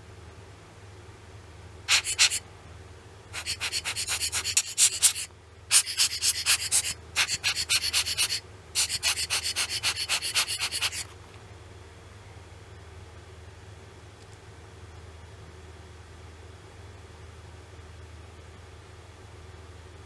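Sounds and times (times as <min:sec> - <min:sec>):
rubber air blower puffing: 0:01.9 - 0:02.4, 0:03.4 - 0:11.0.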